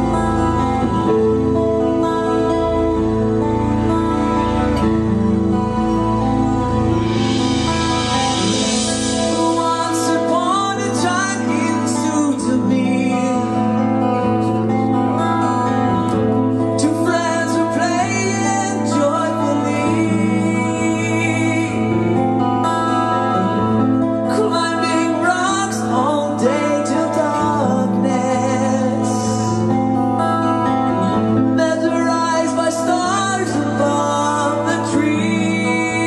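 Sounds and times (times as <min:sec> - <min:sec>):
steady low accompaniment: 0:00.0 - 0:11.5
electric guitar: 0:00.0 - 0:36.0
man singing: 0:08.0 - 0:14.8, 0:16.5 - 0:23.6, 0:24.2 - 0:36.0.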